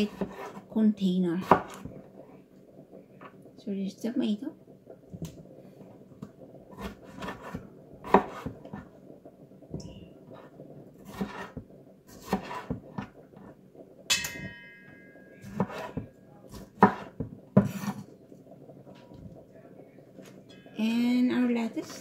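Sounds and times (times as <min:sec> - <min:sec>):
knife chopping on wooden board: 0:00.0 - 0:00.6, 0:01.4 - 0:01.9, 0:06.7 - 0:08.6, 0:11.0 - 0:13.1, 0:15.5 - 0:18.0
short metallic ring: 0:14.1 - 0:15.4.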